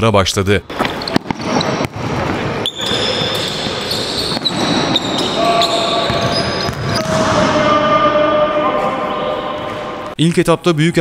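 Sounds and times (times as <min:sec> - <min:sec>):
basketballs bouncing: 0:00.7 - 0:08.1.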